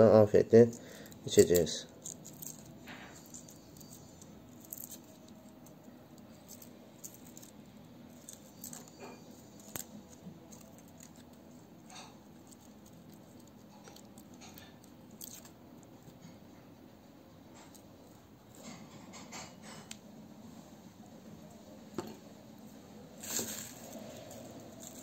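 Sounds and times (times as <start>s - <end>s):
garlic skins crackling: 0.5s - 16.2s, 23.2s - 25.0s.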